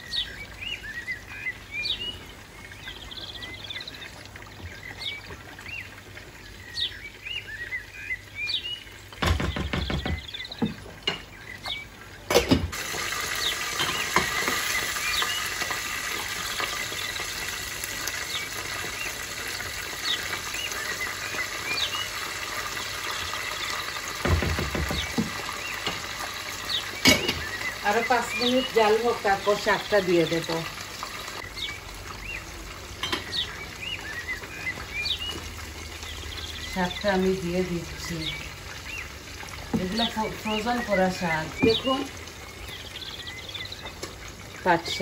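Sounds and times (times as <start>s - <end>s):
pot boiling and hissing: 0.0s - 45.0s.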